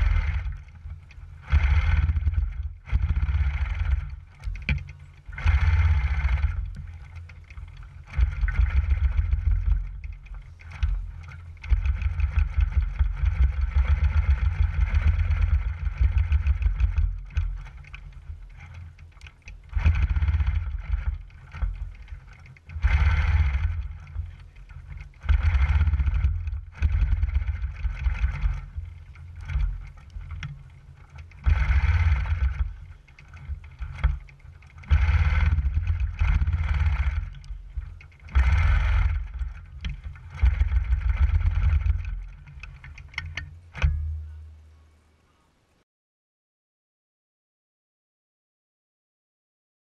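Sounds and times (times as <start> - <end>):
quilting machine stitching: 18.6 - 43.5.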